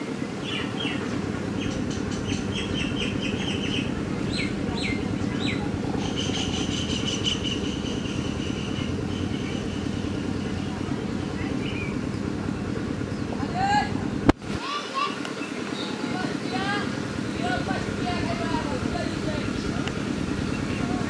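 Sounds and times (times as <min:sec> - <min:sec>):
small birds chirping: 0:00.0 - 0:21.0
low rumble: 0:00.3 - 0:14.6
high bird trill: 0:00.4 - 0:13.4.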